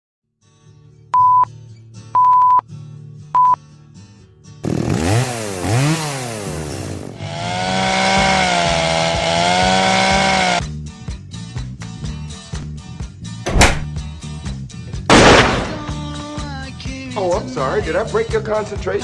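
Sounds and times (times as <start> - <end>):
countdown beeps: 1.2 - 1.5, 2.2 - 2.6, 3.4 - 3.6
chainsaw revving and running: 4.6 - 10.6.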